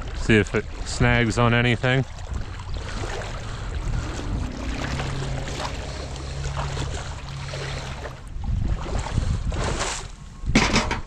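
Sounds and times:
small water splashes: 0.0s - 10.2s
waders sloshing through water: 0.0s - 10.2s
faint low hum: 2.7s - 8.5s.

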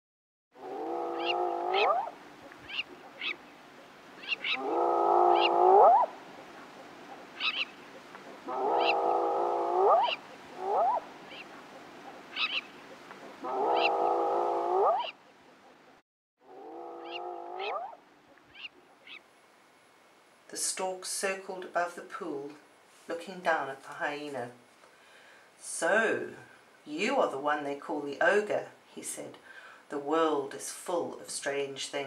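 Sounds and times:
hyena calling: 0.6s - 15.8s, 16.4s - 19.3s.

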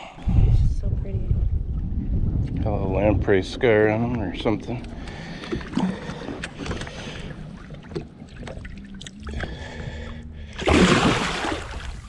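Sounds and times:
quiet water sounds: 0.0s - 12.0s
fish splashing: 10.6s - 12.0s.

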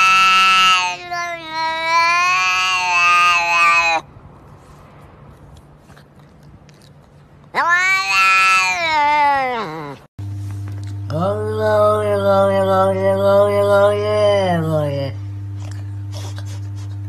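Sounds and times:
cat meowing: 0.0s - 4.1s, 7.5s - 10.1s.

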